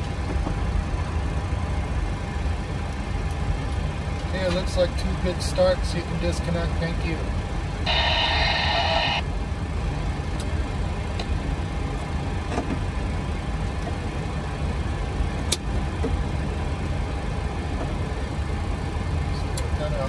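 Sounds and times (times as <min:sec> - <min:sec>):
jet engines idling: 0:07.3 - 0:20.0.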